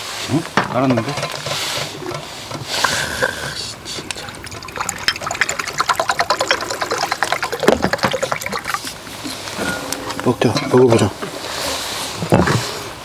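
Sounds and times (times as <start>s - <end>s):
liquid glugging from bottle: 4.0s - 9.5s.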